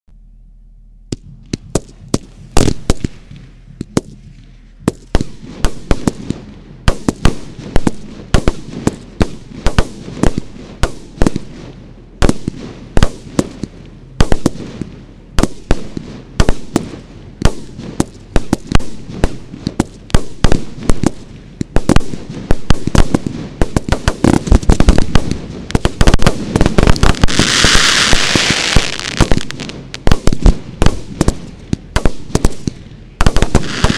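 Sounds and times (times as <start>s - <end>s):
fireworks bangs and pops: 1.1s - 33.9s
loud rushing hiss: 15.6s - 33.9s.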